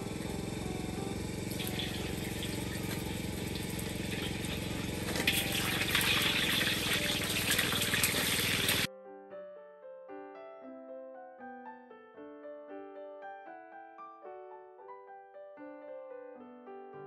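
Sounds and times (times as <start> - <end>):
steady low hum: 0.0 - 8.9
soft piano music: 0.0 - 17.0
food sizzling in hot oil: 1.6 - 8.9.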